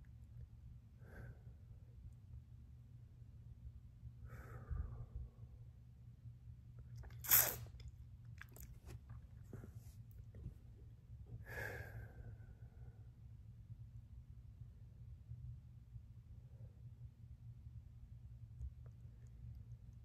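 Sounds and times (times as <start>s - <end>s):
man breathing hard: 4.2s - 5.3s, 11.4s - 13.0s.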